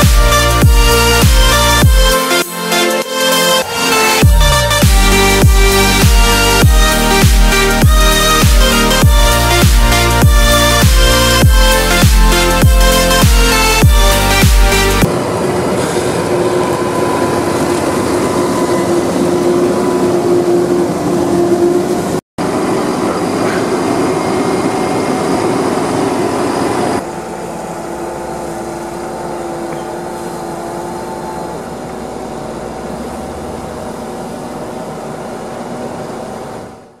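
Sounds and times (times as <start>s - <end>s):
tractor engine whine: 0.0s - 37.0s.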